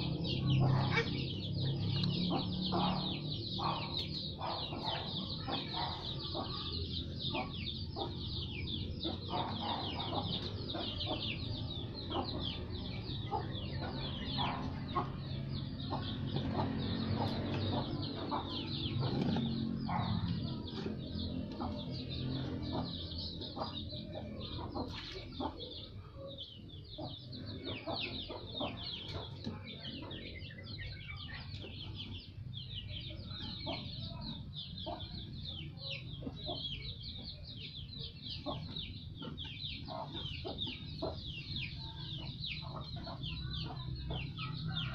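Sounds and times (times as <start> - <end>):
birds chirping: 0.0 - 44.9.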